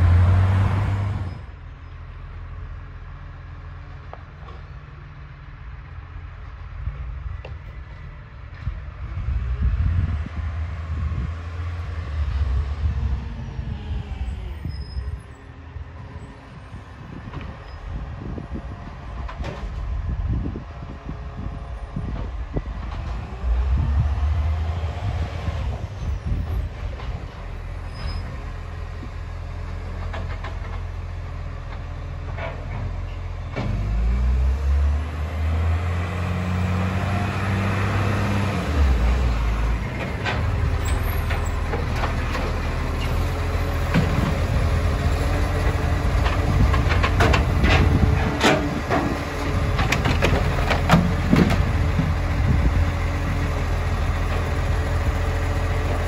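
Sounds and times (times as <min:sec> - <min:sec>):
garbage truck diesel engine: 0:00.0 - 0:56.0.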